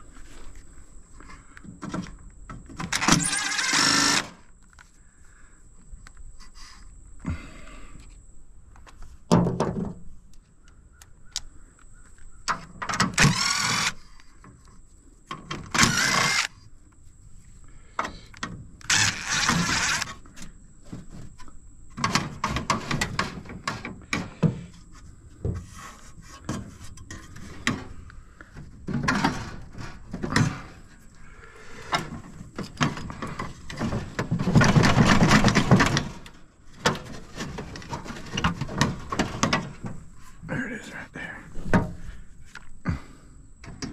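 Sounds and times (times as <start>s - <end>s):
metal clanks and rattles: 26.4s - 31.0s, 31.9s - 40.2s.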